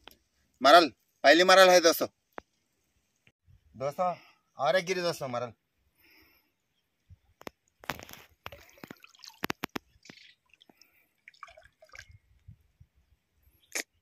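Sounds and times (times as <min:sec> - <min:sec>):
water splashing and dripping: 0:07.5 - 0:12.5.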